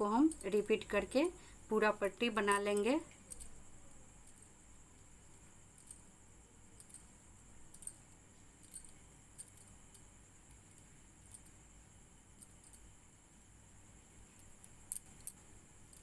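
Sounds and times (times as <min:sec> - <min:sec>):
low steady hiss: 0:00.0 - 0:16.0.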